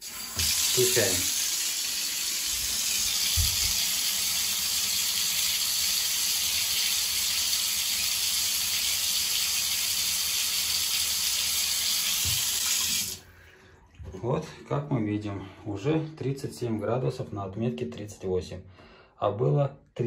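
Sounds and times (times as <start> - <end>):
water running into bathtub: 0.0 - 13.3.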